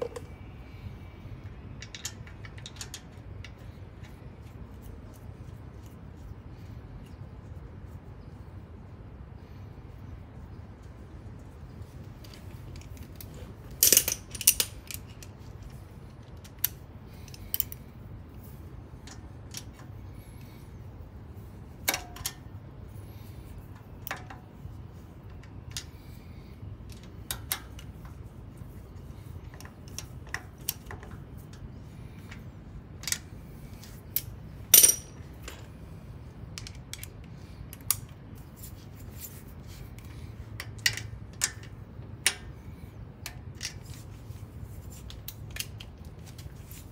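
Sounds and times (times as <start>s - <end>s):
socket wrench and bolts clinking: 13.8s - 15.3s, 34.8s - 35.7s.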